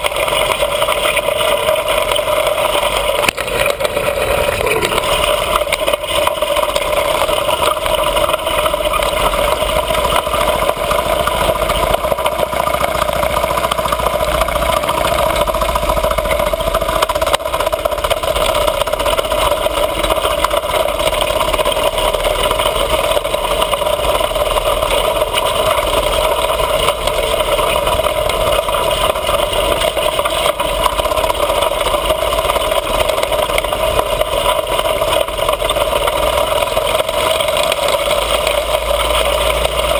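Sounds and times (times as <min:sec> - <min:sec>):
small motorbike engine running: 0:00.0 - 0:39.9.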